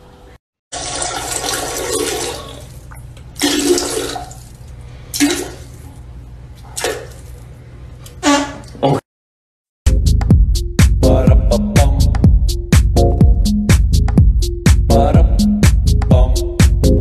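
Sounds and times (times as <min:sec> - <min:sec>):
toilet flushing: 0:00.7 - 0:05.8
water running as tank refills: 0:00.7 - 0:05.9.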